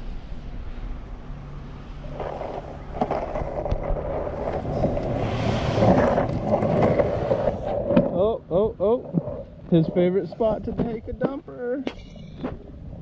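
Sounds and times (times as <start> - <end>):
skateboard wheels rolling on concrete: 0.0 - 13.0.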